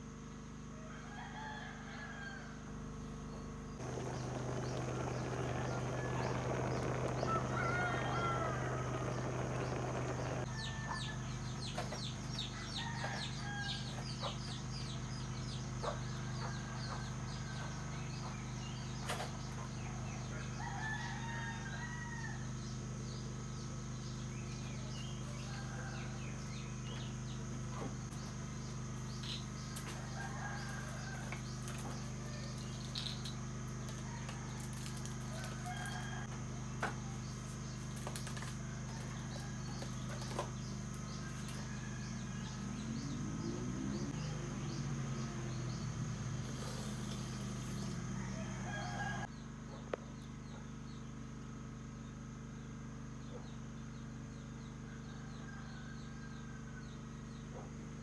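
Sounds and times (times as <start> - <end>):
steady low hum: 0.0 - 58.0
rooster crowing: 0.7 - 2.8, 3.8 - 11.4, 12.5 - 14.3, 15.4 - 18.8, 19.8 - 22.7, 25.0 - 27.0, 29.9 - 33.1, 34.0 - 37.2, 38.6 - 49.4, 54.3 - 57.0.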